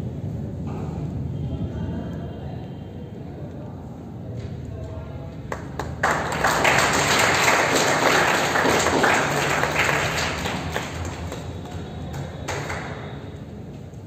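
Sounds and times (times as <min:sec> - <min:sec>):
audience applauding: 0:05.5 - 0:13.2.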